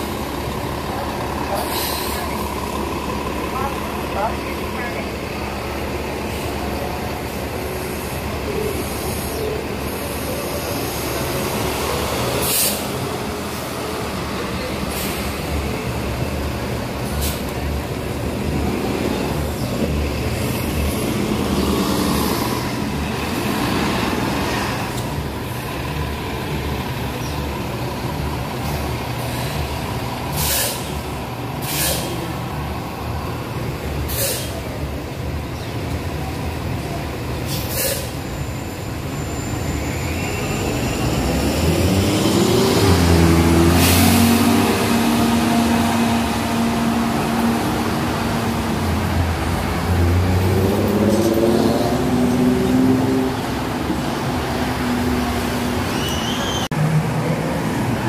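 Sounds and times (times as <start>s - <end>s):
bus engine rumble: 0.0s - 58.0s
air brakes hissing: 1.5s - 2.4s, 12.3s - 13.1s, 14.8s - 15.4s, 17.0s - 17.5s, 30.3s - 31.0s, 31.6s - 32.3s, 34.1s - 34.7s, 37.4s - 38.3s.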